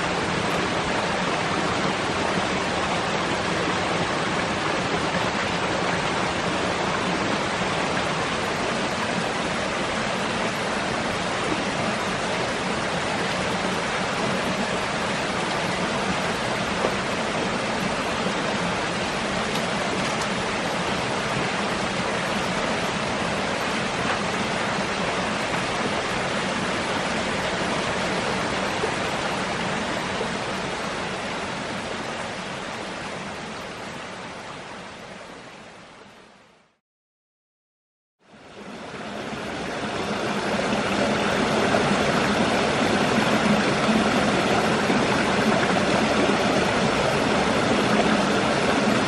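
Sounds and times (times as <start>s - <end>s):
stream water rushing: 0.0s - 36.8s, 38.2s - 49.0s.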